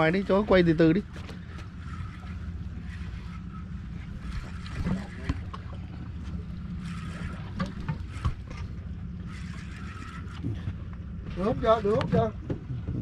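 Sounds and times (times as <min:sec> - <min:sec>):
outboard motor idling: 0:00.0 - 0:13.0
fishing reels clicking: 0:06.8 - 0:10.7
wind on microphone: 0:12.0 - 0:13.0.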